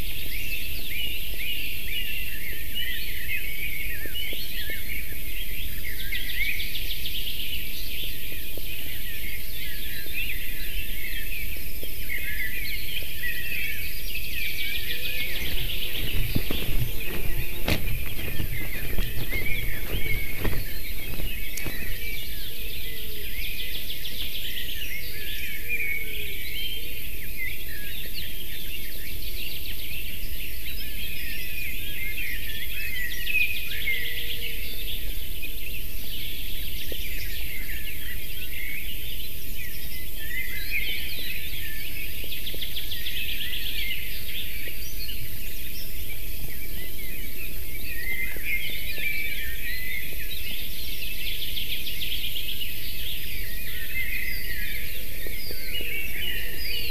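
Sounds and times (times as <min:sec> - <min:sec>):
steady hiss and low rumble: 0:07.4 - 0:25.4
birds chirping and trilling: 0:14.0 - 0:23.6.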